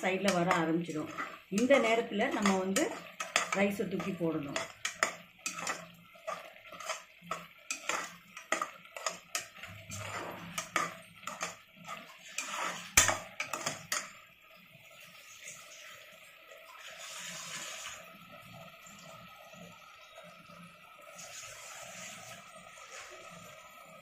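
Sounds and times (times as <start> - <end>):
metal ladle scraping a pot: 0.0 - 14.1.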